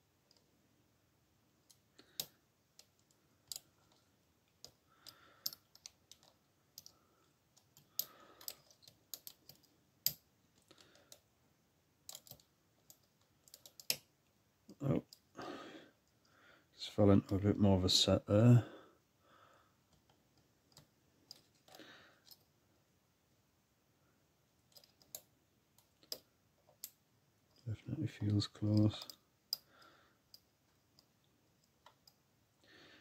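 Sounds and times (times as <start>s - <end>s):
faint metallic clicks of lock picking: 1.6s - 7.0s, 12.1s - 14.1s, 24.7s - 29.7s.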